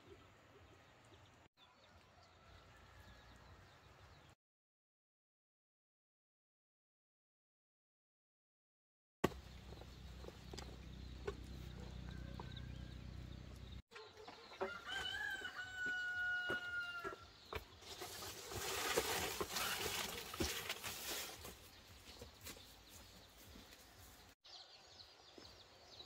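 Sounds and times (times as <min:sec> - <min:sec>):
rooster crowing: 0:01.8 - 0:03.4, 0:11.8 - 0:13.1, 0:14.6 - 0:17.2.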